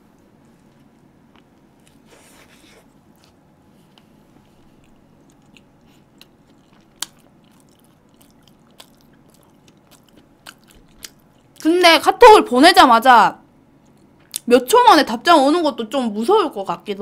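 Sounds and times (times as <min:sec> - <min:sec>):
person chewing with mouth clicks: 0:03.1 - 0:11.7.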